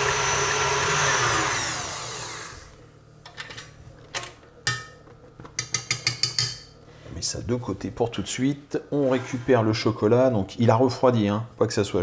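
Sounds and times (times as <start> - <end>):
stand mixer winding down: 0.0 - 2.8.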